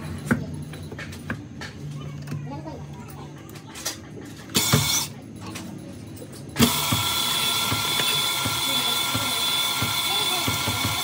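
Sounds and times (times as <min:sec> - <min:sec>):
honing machine grinding whine: 0:06.6 - 0:11.0.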